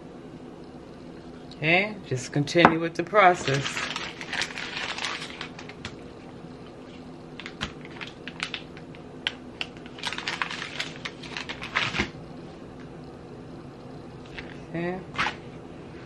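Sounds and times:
plastic package crinkling: 0:03.3 - 0:06.0, 0:07.4 - 0:12.2.

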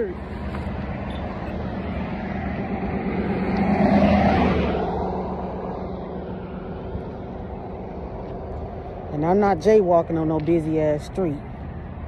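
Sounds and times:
car passing: 0:00.0 - 0:12.0
road traffic: 0:00.0 - 0:12.0.

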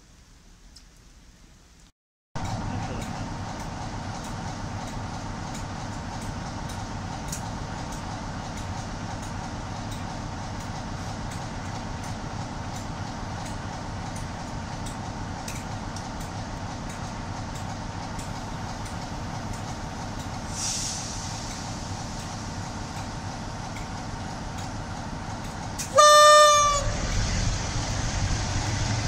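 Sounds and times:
diesel locomotive engine idling: 0:02.4 - 0:29.0
air release hiss: 0:20.5 - 0:22.6.

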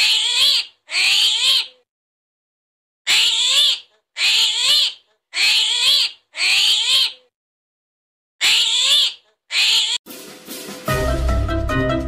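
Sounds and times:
armadillo high-pitched cries: 0:00.0 - 0:01.9, 0:03.1 - 0:07.3, 0:08.4 - 0:10.0.

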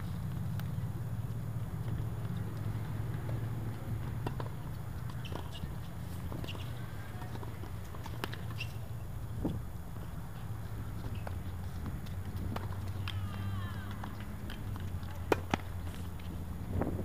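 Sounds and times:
tennis balls bouncing and struck: 0:00.0 - 0:17.0
shoe squeaks: 0:05.0 - 0:07.2, 0:08.0 - 0:09.1, 0:11.0 - 0:11.6.

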